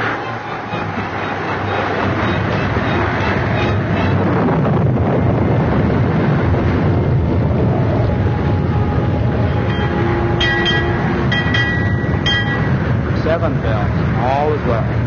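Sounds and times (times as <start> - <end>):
wind and waves roaring: 0.0 - 15.0.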